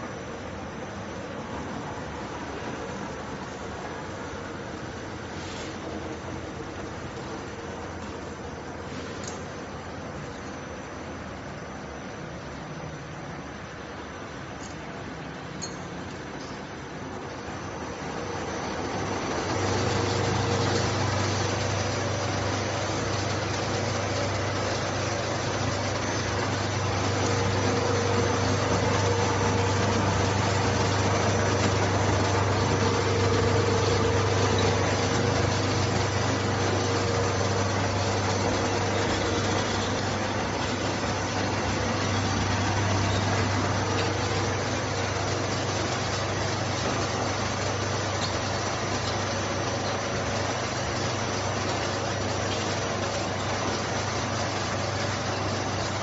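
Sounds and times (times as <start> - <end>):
machine motor hum: 16.1 - 56.0
rollers whirring: 17.1 - 56.0.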